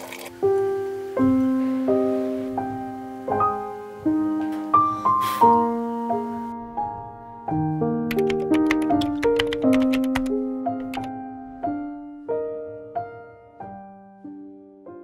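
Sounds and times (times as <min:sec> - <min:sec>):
slow solo piano: 0:00.0 - 0:15.0
typewriter key clicks: 0:08.1 - 0:11.1.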